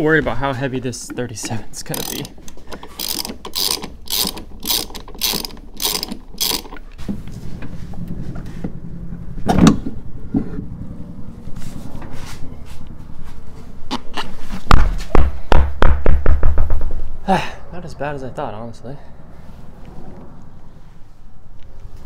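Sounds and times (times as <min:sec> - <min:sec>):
socket ratchet clicking: 0:01.0 - 0:07.0.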